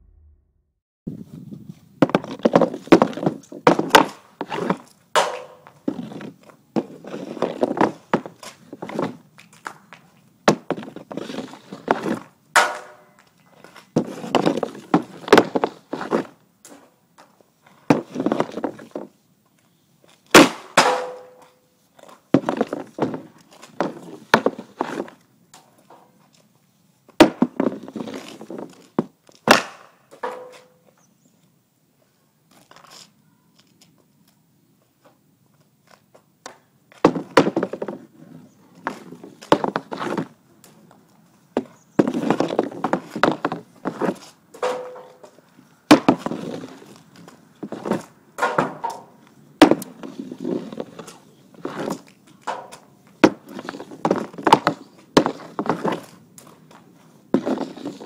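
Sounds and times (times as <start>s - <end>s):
pucks clattering on wooden board: 2.0s - 8.3s, 11.9s - 13.2s, 20.4s - 21.6s, 27.2s - 30.8s, 37.0s - 38.0s, 41.6s - 47.0s, 47.6s - 56.2s
hockey stick clacking on puck: 4.0s - 5.8s, 12.0s - 13.2s.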